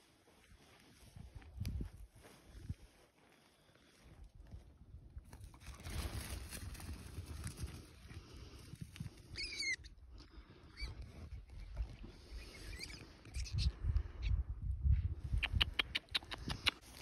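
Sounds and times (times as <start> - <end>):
wind on microphone: 1.2 - 2.8, 10.8 - 17.0.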